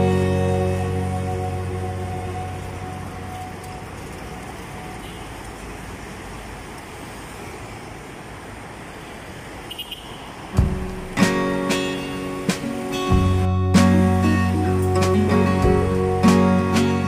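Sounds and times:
background guitar music: 0.0 - 4.6, 10.6 - 17.0
cars passing on busy street: 0.0 - 17.0.

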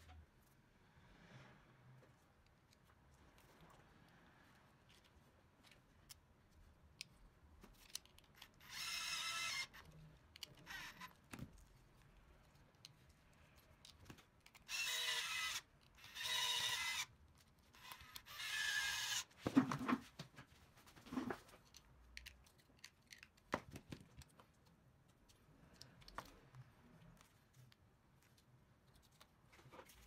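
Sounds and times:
clicks of screws and parts: 6.9 - 11.8, 21.6 - 24.4
electric screwdriver whining: 8.4 - 9.9, 10.6 - 11.2, 14.6 - 17.1, 17.8 - 19.3.

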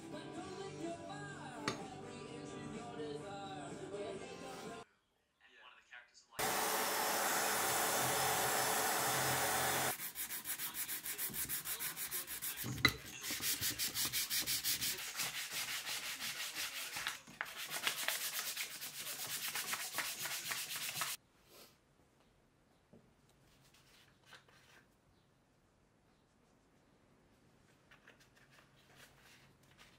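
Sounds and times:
compressed-air tool hissing: 6.4 - 10.0.

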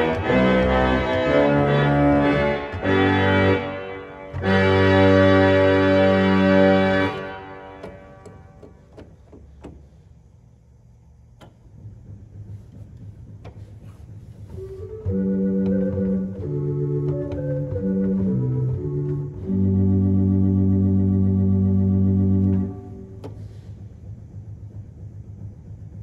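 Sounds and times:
pipe organ chord: 0.0 - 9.1, 14.6 - 23.8
organ stop tabs clicking: 0.0 - 10.0, 15.1 - 23.4
faint low hum: 0.0 - 26.0.

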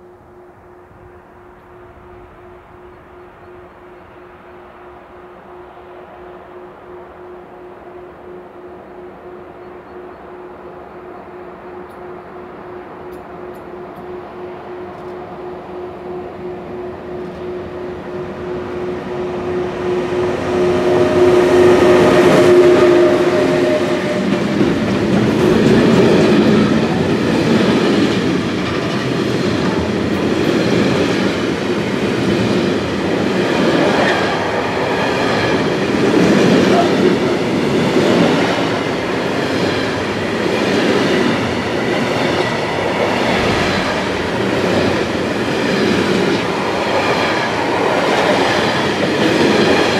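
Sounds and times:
electric locomotive humming: 0.0 - 49.9
freight train wheels clattering: 19.3 - 49.9.

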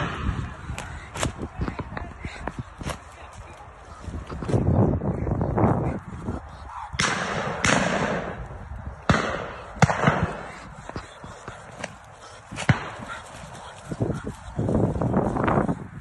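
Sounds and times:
shotgun shots echoing: 7.0 - 8.4, 9.0 - 10.5, 12.6 - 13.1.

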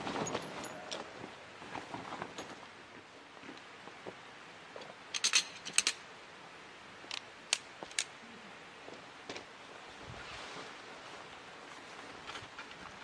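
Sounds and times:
soft outdoor hiss: 0.0 - 13.0
tent pole metal clicks: 7.1 - 8.1.

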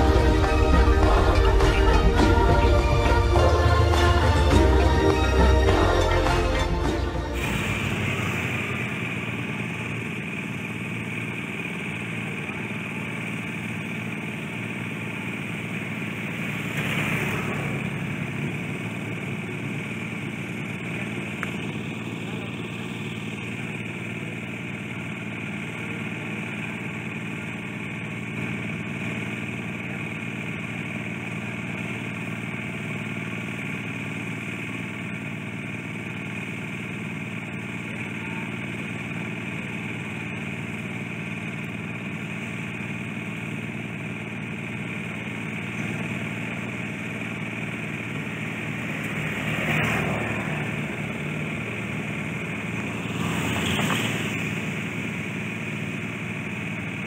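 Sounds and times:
vehicles passing by: 0.0 - 23.9, 45.5 - 57.0
engine idling: 0.0 - 57.0.

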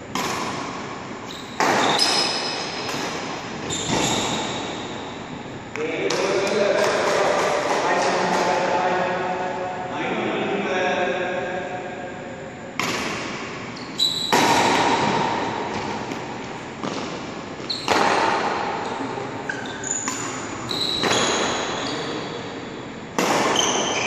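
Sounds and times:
racket striking shuttlecock: 0.1 - 4.0, 12.8 - 13.7, 14.3 - 18.8, 20.0 - 21.6, 23.1 - 23.9
shoes squeaking on court: 1.2 - 5.0, 13.7 - 18.2, 18.8 - 22.4, 23.5 - 24.0.

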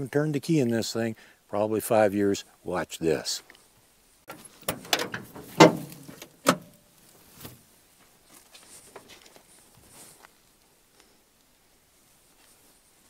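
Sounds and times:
faint rustling: 3.4 - 13.0
sharp metallic clunks: 4.3 - 6.8.

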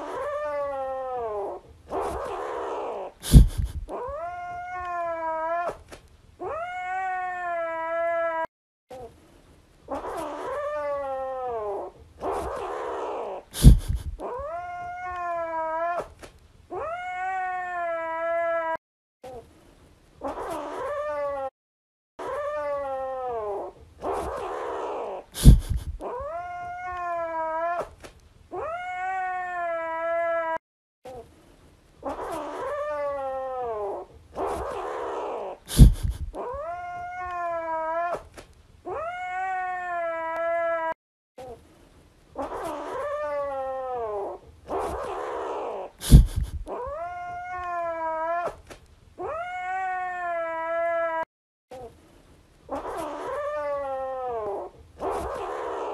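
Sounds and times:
cat meowing: 2.9 - 5.8, 6.4 - 8.5, 13.6 - 16.1, 16.7 - 18.8, 25.4 - 27.9, 28.5 - 30.6, 35.3 - 38.3, 38.9 - 41.0, 42.4 - 48.6, 49.2 - 51.3.

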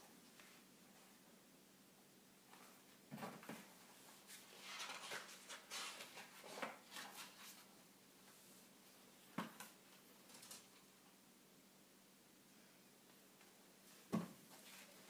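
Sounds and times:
book pages rustling: 4.2 - 7.7.

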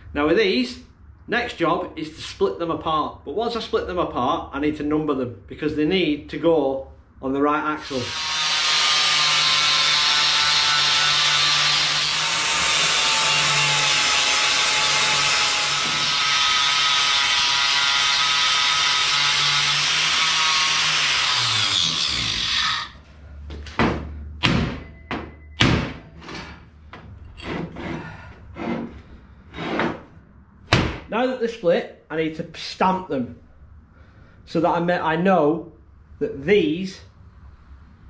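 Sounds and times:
angle grinder cutting steel: 7.8 - 23.0
sharp metal knocks: 23.8 - 26.4, 30.7 - 31.1.

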